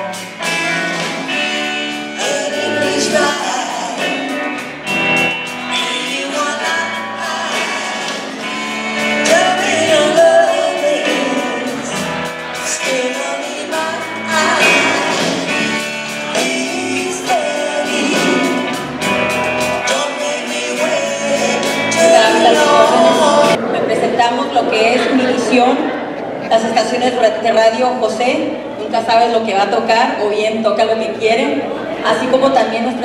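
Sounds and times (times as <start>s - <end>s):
drum kit beat: 0.0s - 23.6s
person singing: 0.0s - 23.7s
electric guitars: 0.0s - 27.1s.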